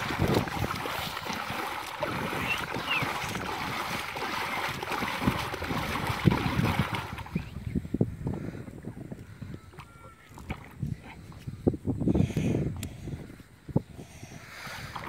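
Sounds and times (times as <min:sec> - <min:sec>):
hands slapping water: 0:00.0 - 0:07.5
muddy water splashing and sloshing: 0:00.0 - 0:09.0, 0:09.7 - 0:11.7, 0:14.6 - 0:15.0.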